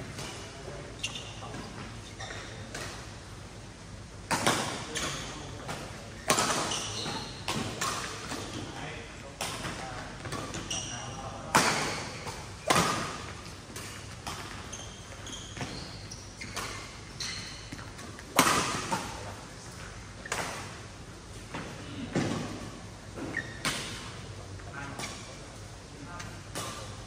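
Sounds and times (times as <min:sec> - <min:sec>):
racket hitting shuttlecock: 0:11.5 - 0:14.5, 0:17.7 - 0:19.2.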